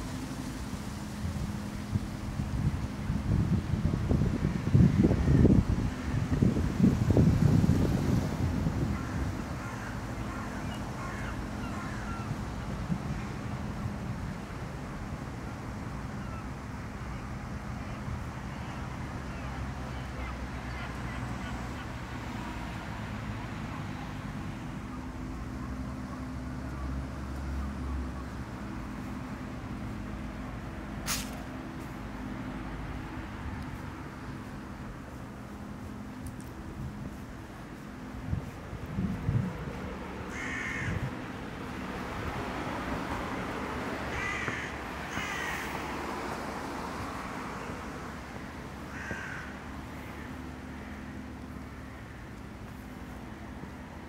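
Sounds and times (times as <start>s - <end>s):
low city hum: 0.0s - 54.0s
crows cawing: 8.9s - 12.4s, 40.3s - 41.1s, 44.1s - 45.7s, 48.9s - 52.4s
short sharp hiss: 31.0s - 31.5s.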